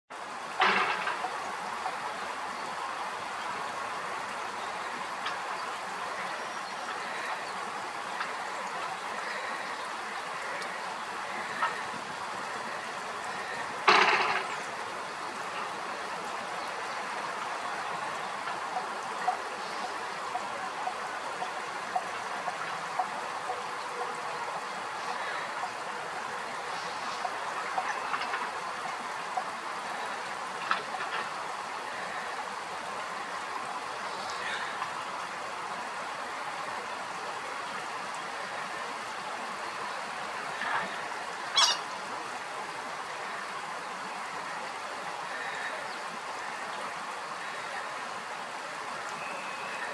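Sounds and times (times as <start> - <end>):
steady background hiss: 0.2 - 49.9
duck calls: 12.6 - 14.7, 41.5 - 41.8.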